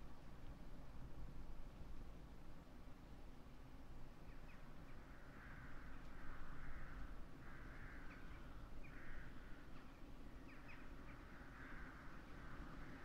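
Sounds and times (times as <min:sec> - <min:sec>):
crows cawing: 0:05.3 - 0:09.7, 0:11.2 - 0:12.6.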